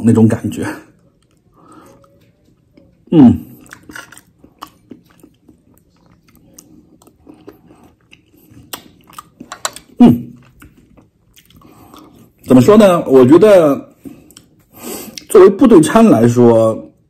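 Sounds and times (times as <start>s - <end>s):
person chewing food: 0.9s - 12.5s, 14.0s - 15.3s.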